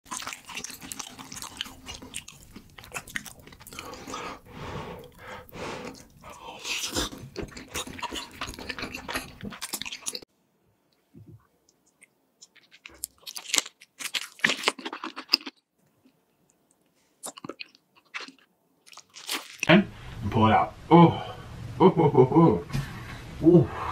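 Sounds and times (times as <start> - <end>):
chewing and crunching food: 0.1 - 10.3, 11.7 - 19.7.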